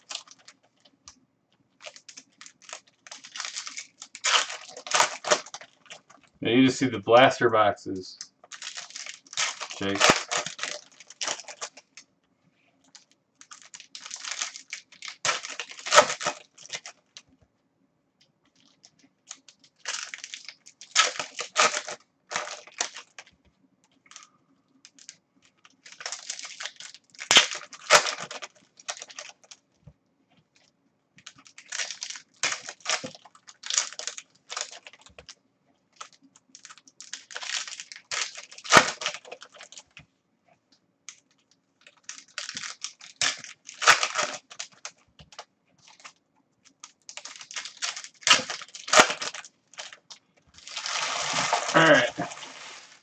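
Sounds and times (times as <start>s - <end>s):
foil wrappers tearing and crinkling: 0.0s - 0.6s, 1.8s - 6.3s, 8.5s - 12.0s, 13.4s - 17.2s, 18.6s - 23.3s, 24.9s - 29.6s, 31.2s - 35.3s, 36.0s - 39.9s, 41.8s - 53.0s.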